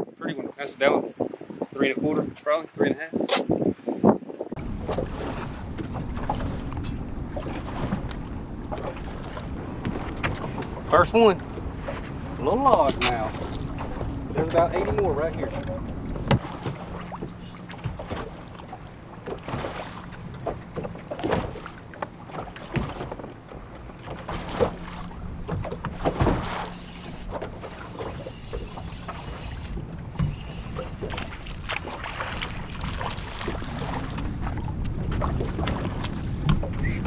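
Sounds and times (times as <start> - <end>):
light wind: 0.0 - 37.0
waves slapping against boat hull: 1.2 - 37.0
water washing: 4.6 - 37.0.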